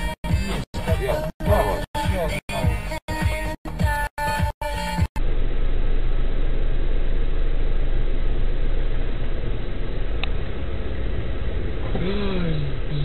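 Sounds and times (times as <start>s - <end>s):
music: 0.0s - 5.2s
muffled car engine and road noise: 5.1s - 13.0s.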